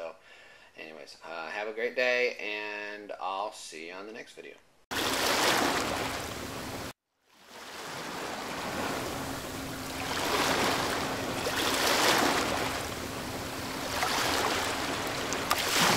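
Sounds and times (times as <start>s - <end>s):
rushing sea water: 4.9s - 15.9s
faint steady hum: 8.1s - 15.9s.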